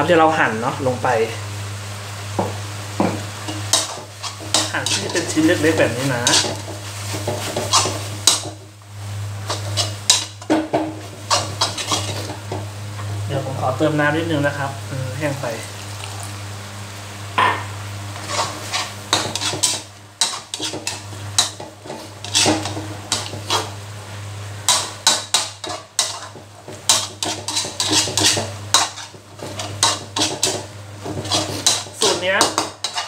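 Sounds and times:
metal spatula scraping a wok: 3.4s - 8.6s, 9.4s - 12.6s, 18.1s - 23.8s, 24.6s - 33.0s.

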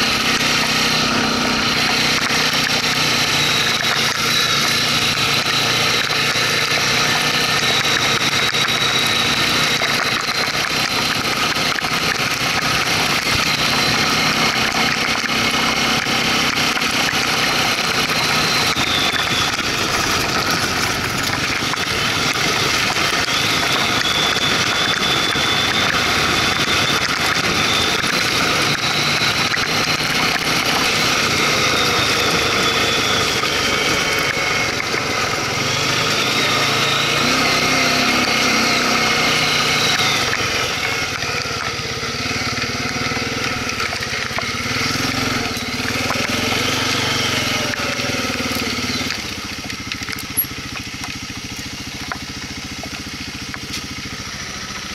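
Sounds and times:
quad engine revving: 0.0s - 54.9s.

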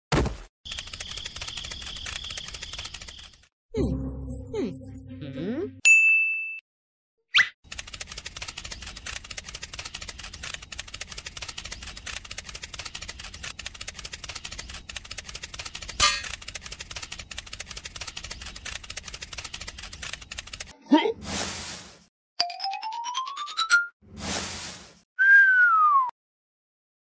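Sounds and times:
fast clicking rattle: 0.7s - 3.5s, 7.7s - 20.7s
sliding whistle-like sound: 25.2s - 26.1s.

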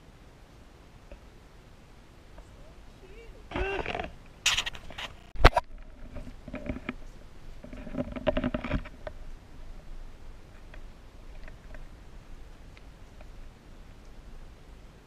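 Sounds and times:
camera handling rustle: 3.6s - 7.0s.

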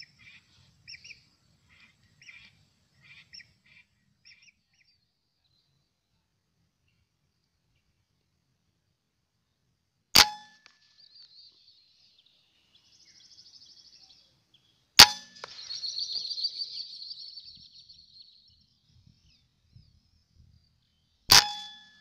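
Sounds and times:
air rifle shots: 10.2s - 10.7s, 15.0s - 16.2s, 21.3s - 21.8s.

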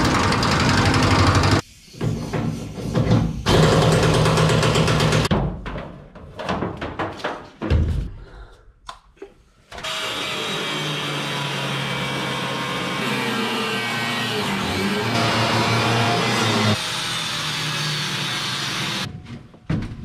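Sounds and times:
cut-off wheel grinding steel: 9.8s - 19.1s.

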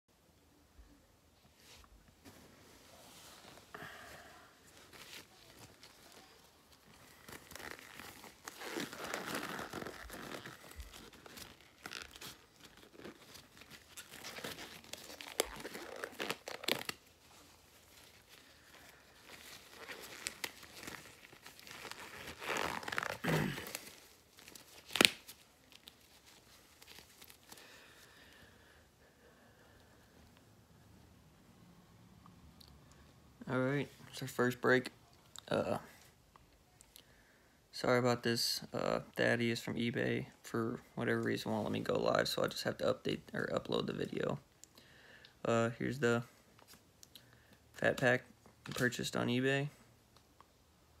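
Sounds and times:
packaging crinkling: 4.8s - 28.0s.

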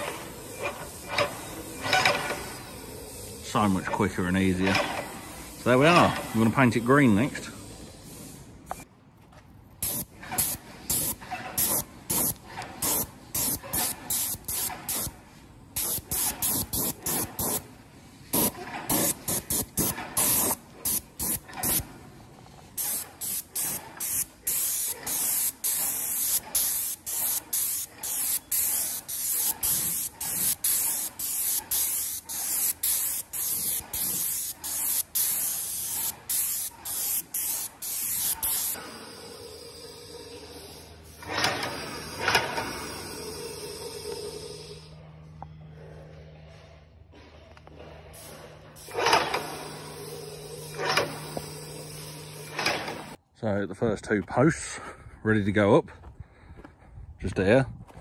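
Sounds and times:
paint sprayer gun hissing bursts: 0.0s - 3.4s, 5.0s - 8.6s, 9.8s - 21.9s, 22.7s - 44.9s, 48.2s - 53.2s.

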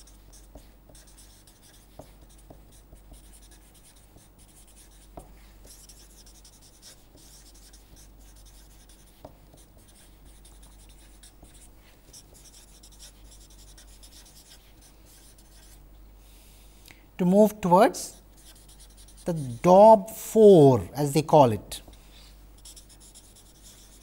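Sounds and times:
marker scratching on paper: 0.0s - 15.8s, 17.9s - 19.7s, 22.6s - 24.0s.

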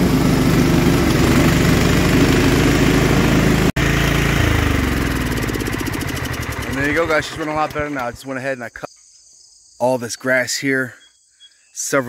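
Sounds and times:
lawn tractor engine running: 0.0s - 8.4s.

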